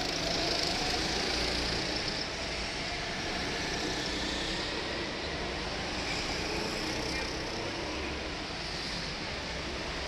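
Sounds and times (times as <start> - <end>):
go-kart engines droning: 0.0 - 10.0.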